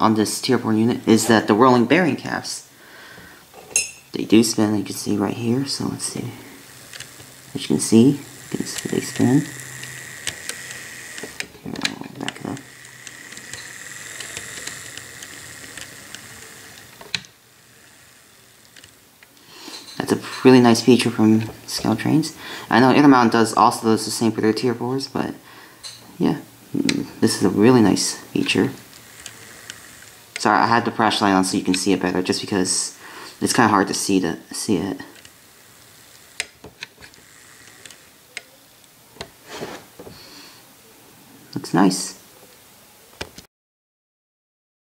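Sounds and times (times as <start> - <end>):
handling rubbing sound: 3.6 - 22.9, 26.0 - 40.3
model train motor whine: 4.3 - 25.2, 26.6 - 40.2
handling clicks: 6.8 - 17.4, 36.2 - 39.4.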